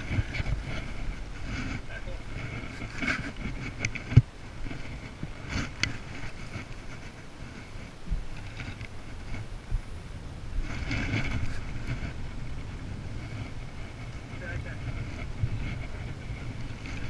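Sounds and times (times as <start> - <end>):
rustling of fishing gear: 0.0 - 17.0
wind rumble on microphone: 0.0 - 17.0.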